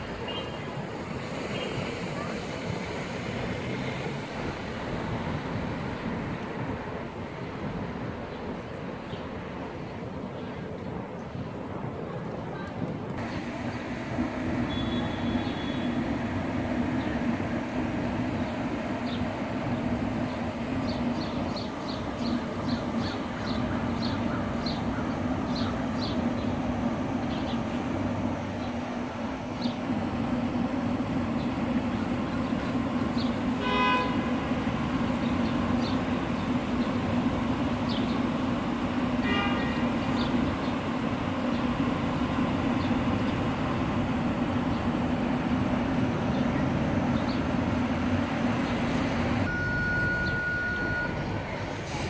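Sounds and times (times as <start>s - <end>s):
street traffic hum: 0.0s - 52.0s
car horn toots: 33.6s - 34.4s, 39.2s - 39.8s.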